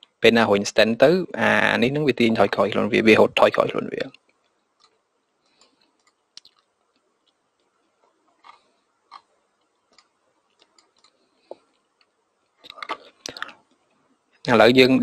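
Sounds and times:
small clicks and ticks: 4.0s - 14.5s.

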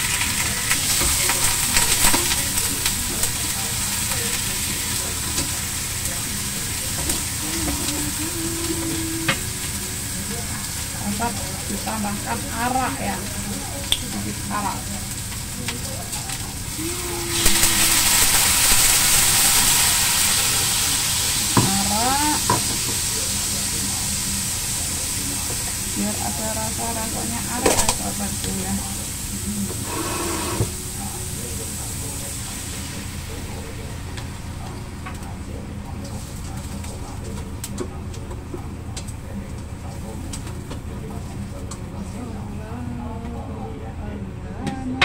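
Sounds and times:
chicken sizzling in a wok: 0.0s - 41.7s
spatula scraping a wok: 29.7s - 30.8s
steady low hum: 30.6s - 45.0s.

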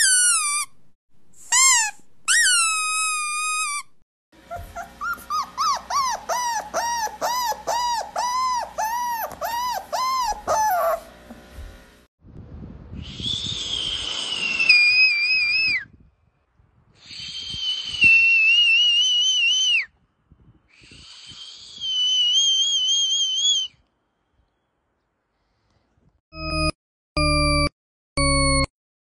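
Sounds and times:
breathy whistle blasts: 13.0s - 15.8s, 17.1s - 19.8s.

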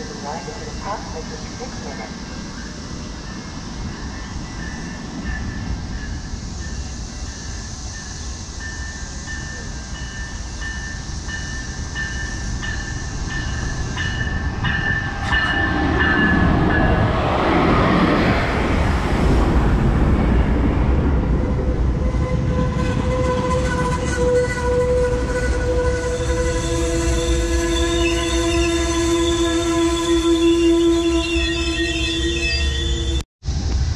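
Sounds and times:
train wheel noise: 0.0s - 33.9s
train wheel squeal: 2.2s - 17.0s, 21.4s - 33.2s.

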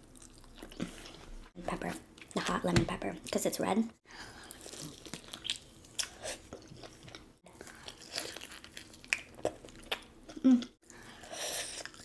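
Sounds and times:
soft chewing: 4.4s - 12.0s.

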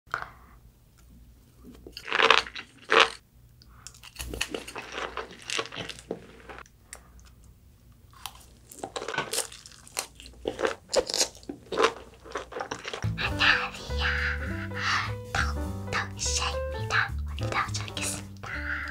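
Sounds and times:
crunchy chewing: 1.6s - 13.1s.

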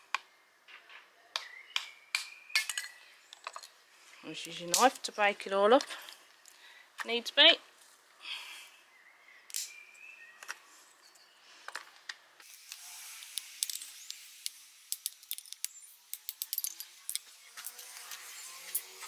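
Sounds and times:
dry sticks snapping and cracking: 9.5s - 9.8s.

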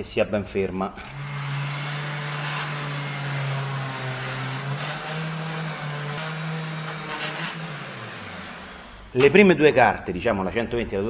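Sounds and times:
orbital sander on metal: 1.1s - 9.4s.

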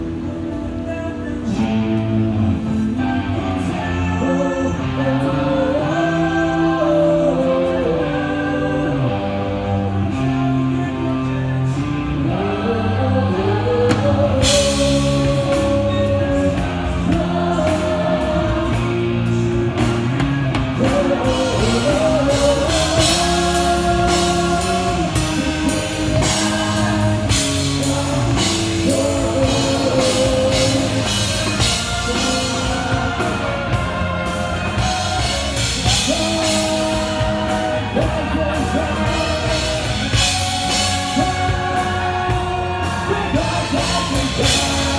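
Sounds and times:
rock song over sound system: 0.0s - 44.9s
drums and cymbals: 13.4s - 44.9s.

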